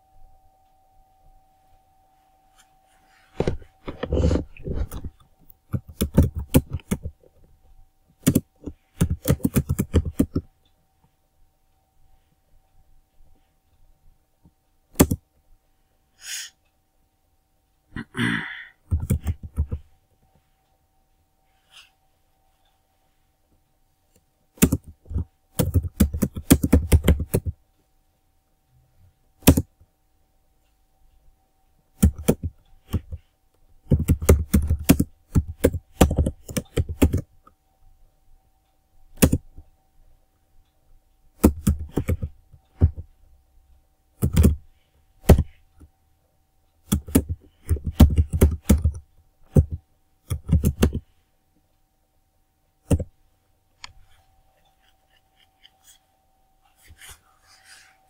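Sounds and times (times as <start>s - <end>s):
computer keyboard typing: 3.9s - 7.3s, 8.2s - 10.5s, 15.0s - 15.2s, 18.9s - 19.9s, 24.6s - 27.6s, 29.4s - 29.8s, 32.0s - 33.2s, 33.8s - 37.3s, 39.2s - 39.5s, 41.4s - 43.1s, 44.2s - 45.6s, 46.9s - 51.1s, 52.9s - 53.1s.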